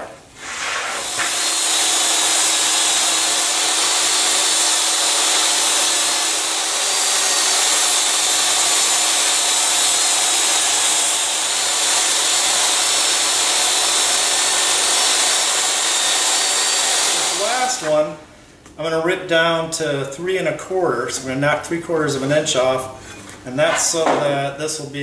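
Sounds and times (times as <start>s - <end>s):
table saw ripping plywood: 0.0s - 18.2s.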